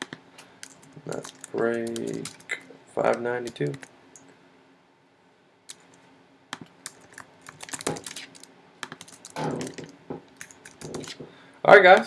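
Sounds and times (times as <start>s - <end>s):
computer keyboard typing: 0.6s - 2.5s, 6.6s - 11.2s.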